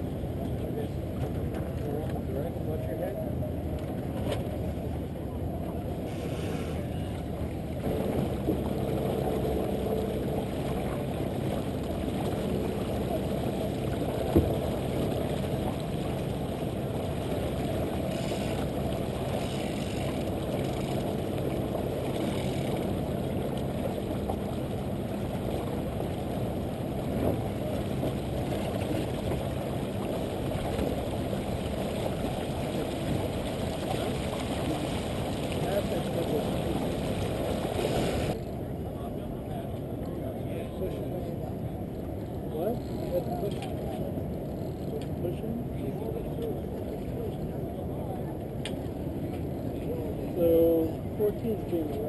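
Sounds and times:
water rushing along hull: 0.0s - 52.0s
wind on microphone: 4.0s - 38.8s.

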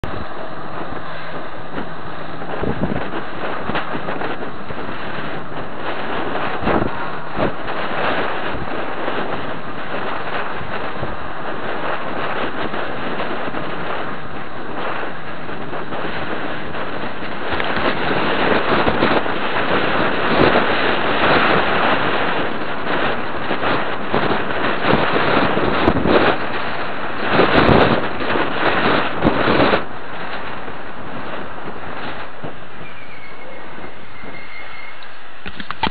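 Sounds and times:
wind rushing over microphone: 0.0s - 35.9s.

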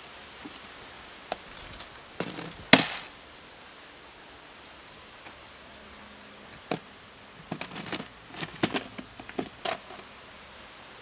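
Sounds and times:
plastic container latches clicking: 7.5s - 10.0s.

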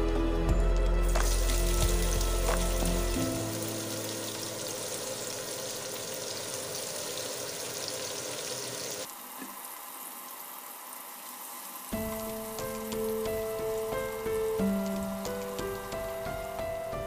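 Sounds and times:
background music: 0.0s - 5.4s, 12.0s - 17.0s
onions sizzling in frying pan: 1.0s - 17.0s.

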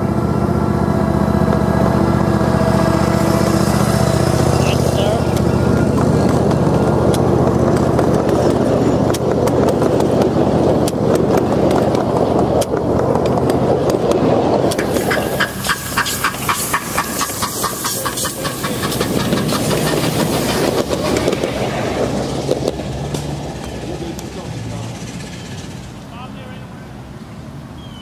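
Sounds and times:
miniature train rumbling on rails: 0.0s - 27.2s
steam train hiss and clickety-clack: 13.5s - 25.9s.

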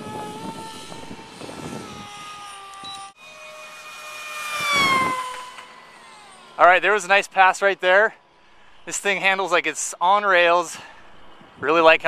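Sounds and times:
model plane motor whining: 0.0s - 8.6s.

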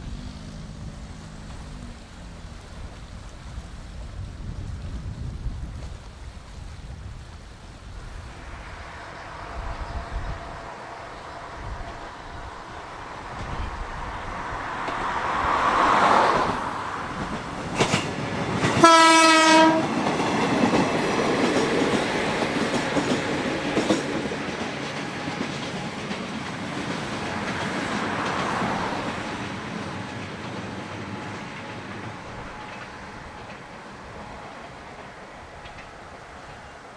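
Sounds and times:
train wheels running on rails: 0.0s - 36.9s
train horn: 18.8s - 20.0s.

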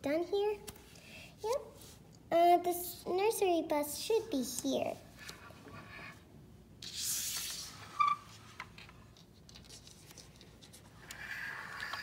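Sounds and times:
soft rustle: 0.7s - 2.2s.

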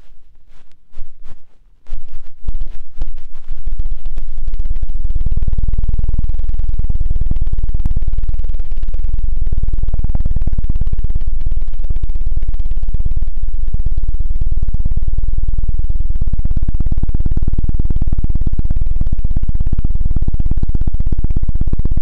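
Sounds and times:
hands stroking microphone: 0.0s - 4.3s.

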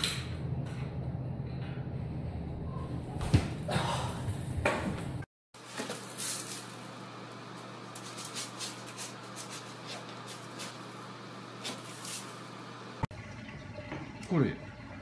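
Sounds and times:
cat scratching in litter: 7.9s - 10.9s, 11.6s - 12.4s.

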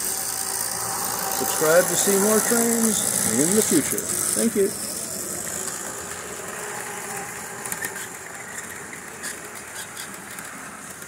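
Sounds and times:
model train rolling rumble: 0.0s - 11.0s
wheels clicking over rail joints: 0.0s - 11.0s.

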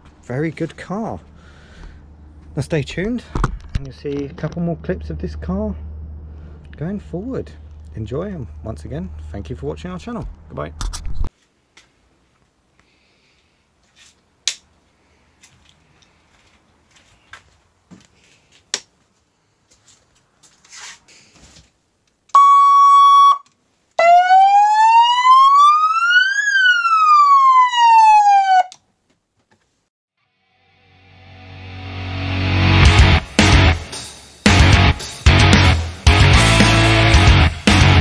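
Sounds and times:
electronic horn tone: 22.4s - 23.5s
electronic siren wail: 22.4s - 28.8s.

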